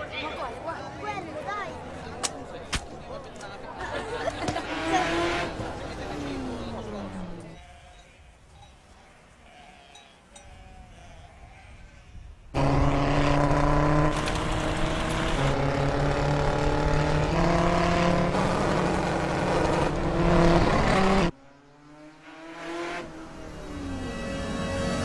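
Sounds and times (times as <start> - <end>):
racing car engine at speed: 4.4 - 7.6, 12.6 - 25.0.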